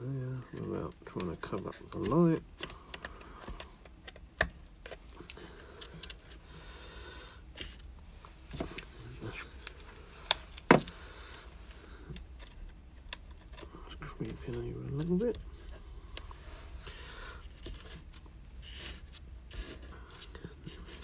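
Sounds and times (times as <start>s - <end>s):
hands clicking and tapping plastic: 0.5s - 6.4s, 9.6s - 11.0s.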